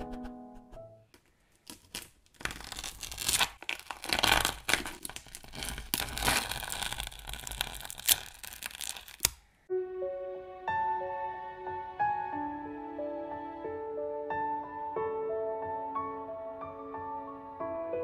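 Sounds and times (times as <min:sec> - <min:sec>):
masking tape ripping off canvas: 0:01.6 - 0:09.5.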